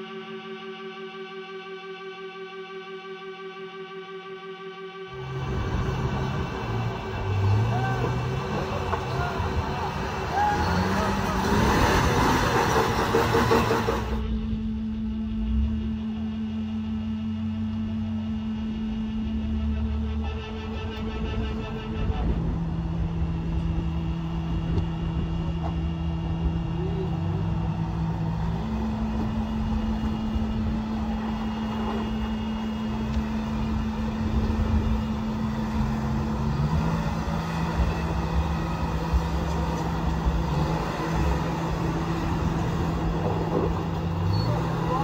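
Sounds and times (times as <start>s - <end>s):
engine pulling at low revs: 5.1s - 45.0s.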